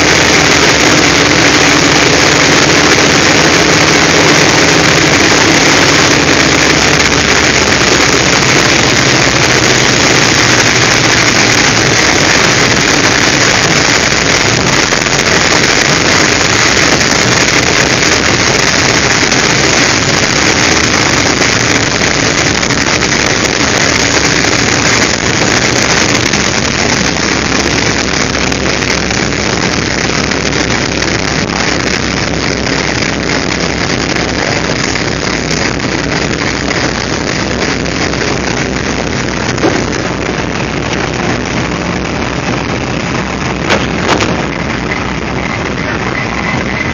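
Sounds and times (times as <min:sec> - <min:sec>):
airflow noise: 0:00.0 - 0:46.9
radial aircraft engine roar: 0:00.0 - 0:46.9.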